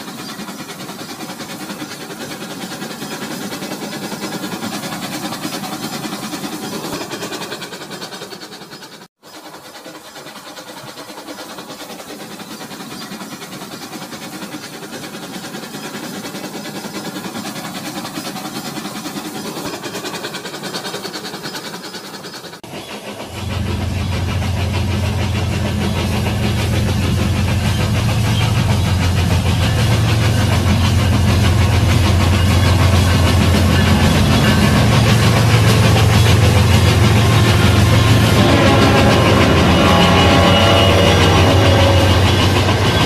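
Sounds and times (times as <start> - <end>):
toy train motor whirring: 0.0 - 22.6
wheels clattering on rails: 0.0 - 43.0.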